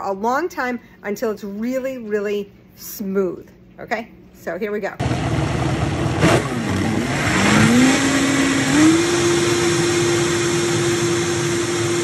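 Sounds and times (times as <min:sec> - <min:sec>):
blender motor whine: 0:05.0 - 0:12.0.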